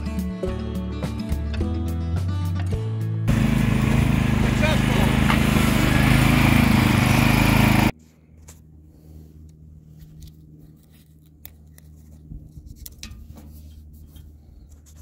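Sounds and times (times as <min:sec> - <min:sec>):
riding mower engine running: 0:03.3 - 0:08.0.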